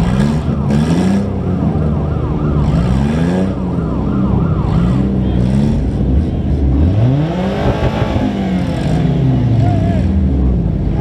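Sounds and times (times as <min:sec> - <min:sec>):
car engines idling and revving: 0:00.0 - 0:11.0
fast warbling siren: 0:00.3 - 0:05.4.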